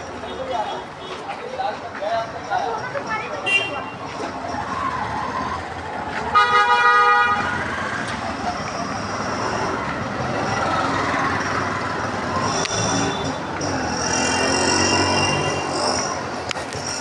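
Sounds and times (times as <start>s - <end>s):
crowd noise: 0.0s - 17.0s
traffic noise: 0.0s - 17.0s
vehicle horn honking: 6.3s - 7.4s.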